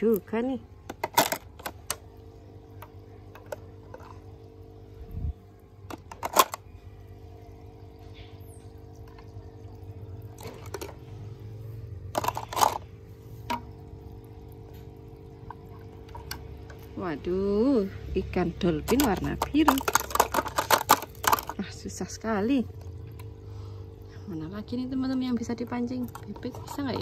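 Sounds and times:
steady low hum: 0:00.0 - 0:27.0
plastic toys knocking in water: 0:12.1 - 0:13.8, 0:18.8 - 0:22.0.

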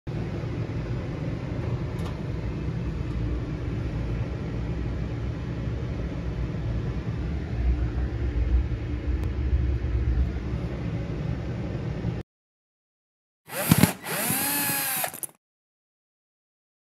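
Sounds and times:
washer spinning low rumble: 0:00.1 - 0:12.2.

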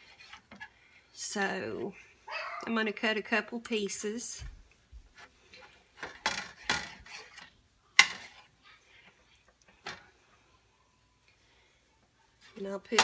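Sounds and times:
knife and fork scraping dish: 0:06.5 - 0:07.4.

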